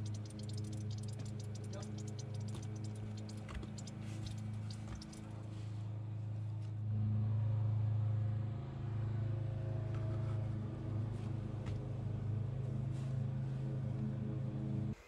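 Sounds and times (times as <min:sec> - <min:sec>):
electric pump humming: 0:00.0 - 0:05.4
faint ticks: 0:00.0 - 0:05.4.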